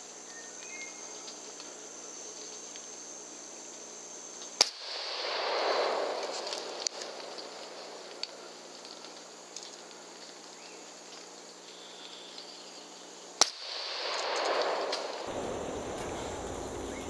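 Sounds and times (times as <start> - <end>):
hiss of noise: 0.0 - 17.0
rifle shot crack: 4.6 - 8.4, 13.4 - 17.0.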